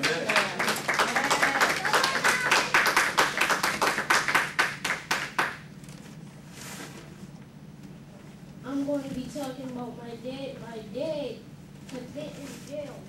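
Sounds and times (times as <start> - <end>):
people clapping: 0.0 - 5.6.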